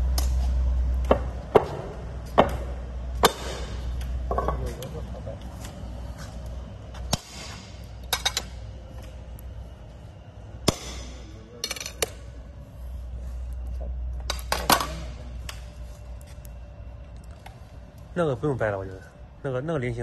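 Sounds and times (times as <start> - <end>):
low steady hum: 0.0 - 20.0
glass snapping with sharp cracks: 10.7 - 11.2.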